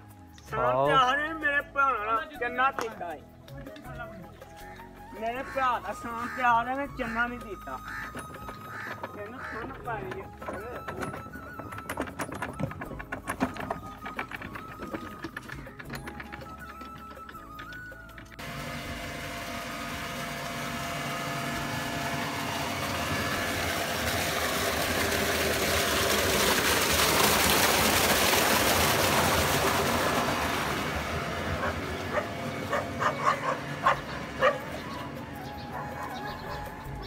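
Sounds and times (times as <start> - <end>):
water gushing into channel: 18.4 - 35.4.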